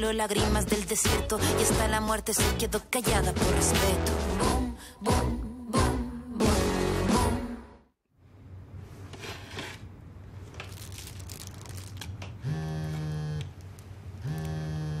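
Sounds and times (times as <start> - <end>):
rustling and handling of objects: 8.8 - 12.4.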